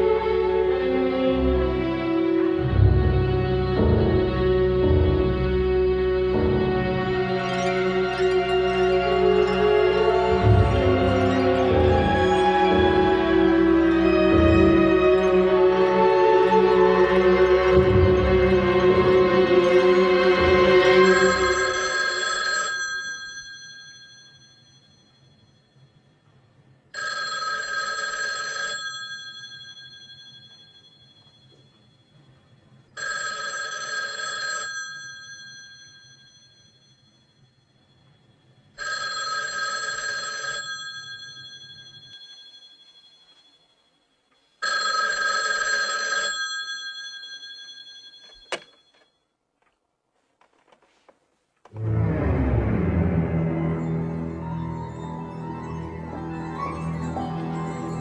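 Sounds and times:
telephone bell ringing: 21.0 - 26.2, 27.0 - 49.3.

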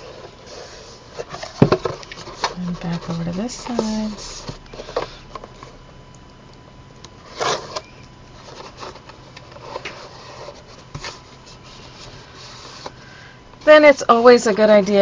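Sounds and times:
heavy paper rustling and scraping: 0.0 - 5.2, 8.4 - 13.0
faint steady hum: 0.0 - 15.0.

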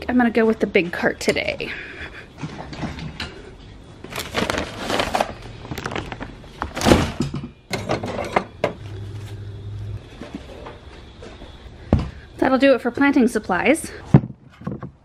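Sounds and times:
bag rustling: 4.1 - 6.9.

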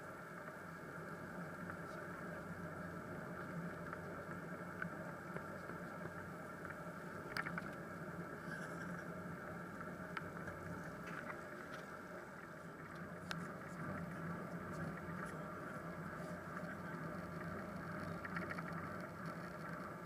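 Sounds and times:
bicycle tyres rolling on wet path: 0.1 - 20.0
small clicks and rattles: 3.8 - 7.8, 12.8 - 20.0.

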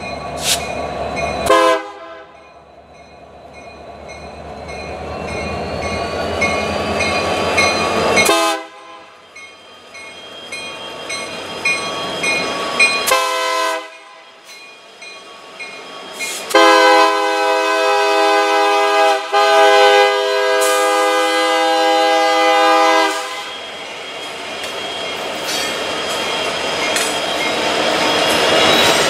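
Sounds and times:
locomotive air horn blasts: 1.5 - 2.3, 8.2 - 9.1, 13.1 - 14.1, 16.5 - 23.5
steel wheels clattering on rails: 24.6 - 29.0.

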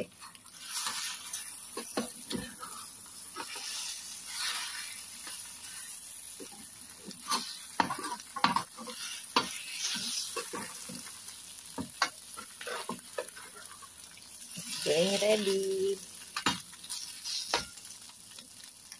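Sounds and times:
potatoes and egg sizzling: 0.0 - 18.9
metal spatula scraping pan: 0.6 - 11.1, 11.8 - 13.9, 16.4 - 17.9.

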